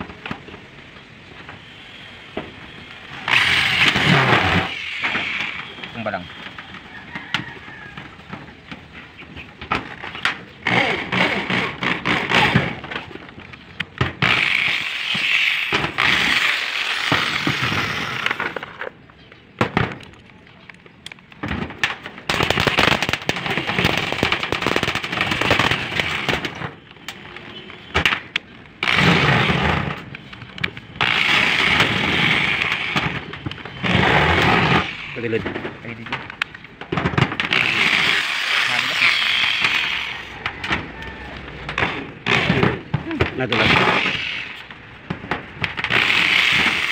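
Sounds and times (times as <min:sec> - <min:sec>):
electric drill driving screws into metal: 0:03.2 - 0:05.6, 0:14.2 - 0:18.8, 0:31.0 - 0:33.2, 0:37.4 - 0:40.3, 0:42.3 - 0:42.8, 0:43.5 - 0:44.6, 0:45.8 - 0:46.9.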